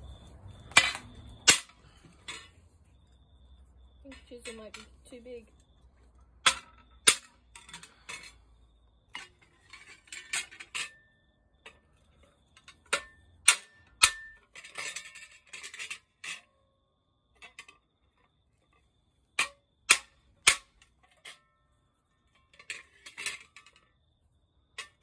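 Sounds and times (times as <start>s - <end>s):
metal clatter: 0.0s - 2.7s, 6.4s - 8.5s, 9.1s - 16.6s, 17.4s - 24.0s, 24.8s - 25.0s.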